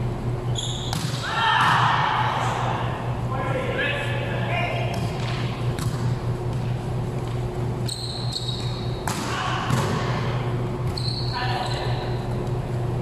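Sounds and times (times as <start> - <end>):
steady low hum: 0.0 - 13.0
sneakers squeaking on court: 0.4 - 1.2, 5.0 - 10.0, 10.8 - 12.4
volleyball being struck: 0.8 - 2.0, 4.9 - 6.2, 9.0 - 10.3.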